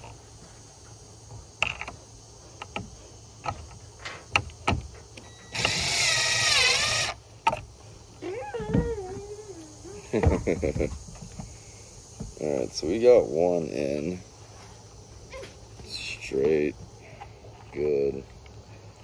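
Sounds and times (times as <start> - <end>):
light clicks and knocks of parts: 0.0 - 5.3
impact driver driving screw: 5.5 - 7.2.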